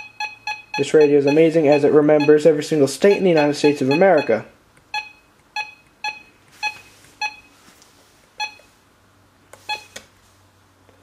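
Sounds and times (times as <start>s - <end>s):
electronic key beeps: 0.0s - 2.4s, 3.0s - 7.6s, 8.4s - 8.7s, 9.6s - 10.0s.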